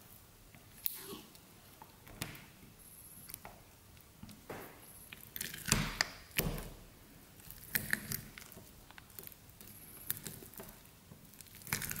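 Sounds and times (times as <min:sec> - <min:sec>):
slime squishing: 0:05.1 - 0:12.0
slime stirred in glass bowl: 0:07.4 - 0:12.0.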